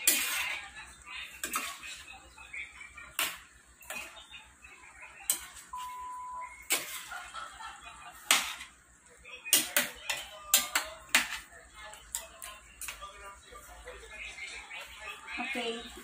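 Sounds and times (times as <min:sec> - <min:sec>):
metal spoon scraping steel pan: 0:00.0 - 0:00.7, 0:01.3 - 0:02.1, 0:06.6 - 0:07.1.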